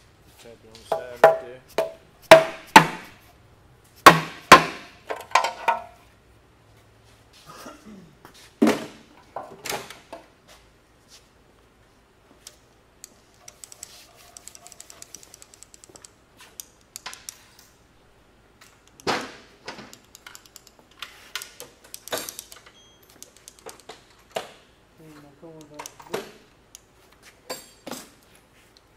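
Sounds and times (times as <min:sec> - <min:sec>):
metal tools clinking and clanking: 0:20.2 - 0:24.4, 0:27.4 - 0:28.5.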